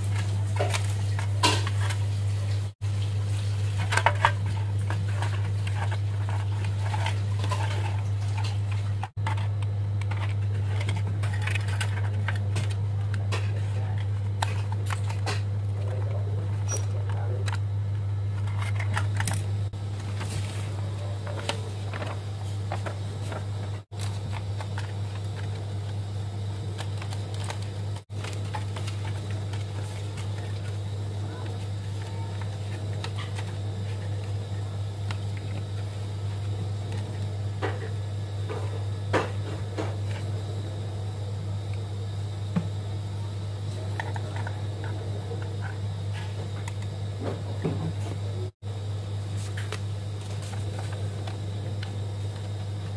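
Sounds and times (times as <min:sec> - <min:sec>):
paper rustling: 0:00.0 - 0:17.6, 0:18.3 - 0:37.3, 0:49.3 - 0:52.9
steady low hum: 0:00.0 - 0:52.9.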